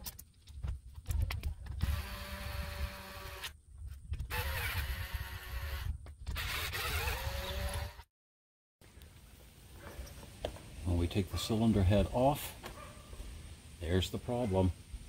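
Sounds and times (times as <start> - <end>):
cordless drill whining: 1.8 - 3.5, 4.3 - 8.1.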